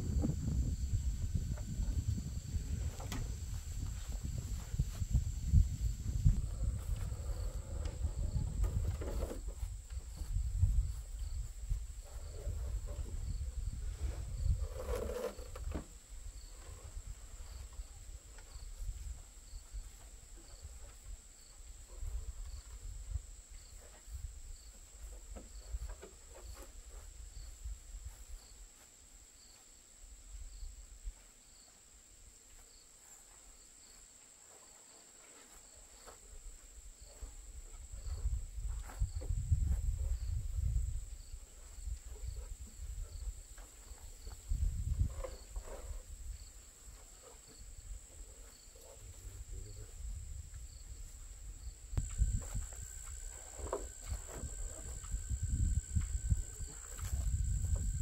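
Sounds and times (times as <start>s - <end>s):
faint insect chirp: 0.0s - 58.0s
insects droning: 0.0s - 58.0s
wooden waterwheel knocks and scrapes: 2.6s - 5.2s, 6.2s - 11.0s, 12.0s - 18.7s, 23.8s - 27.1s, 41.6s - 47.7s, 52.0s - 55.4s.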